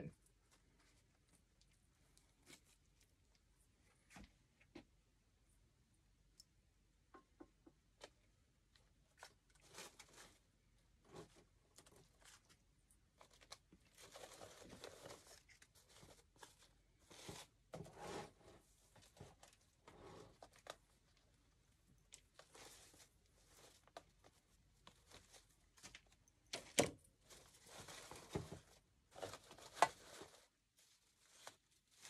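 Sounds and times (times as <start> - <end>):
artificial flowers rustling: 27.1 - 32.0.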